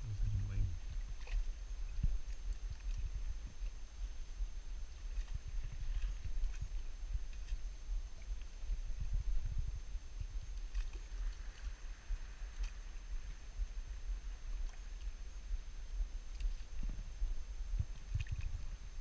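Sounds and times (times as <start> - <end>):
wind buffeting microphone: 0.0 - 14.8, 16.4 - 19.0
faint ticks: 16.3 - 18.7.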